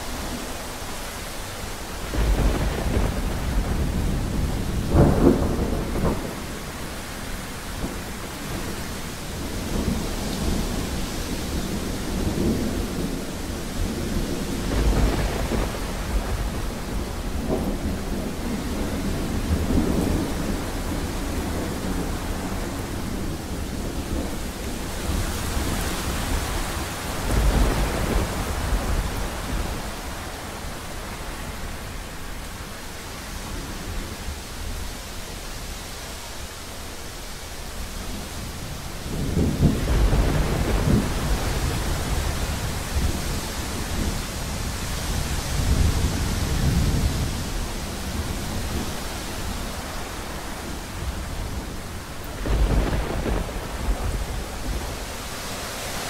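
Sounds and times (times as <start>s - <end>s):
steady rain: 0.0s - 56.0s
thunder rumbles: 1.8s - 32.3s, 38.0s - 56.0s.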